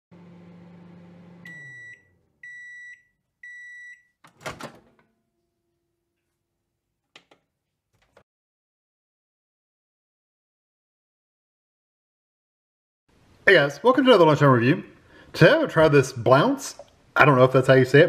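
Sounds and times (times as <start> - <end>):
microwave oven humming: 0.1 - 2.8
microwave beeps: 0.6 - 4.2
microwave door clunking open: 4.3 - 5.0.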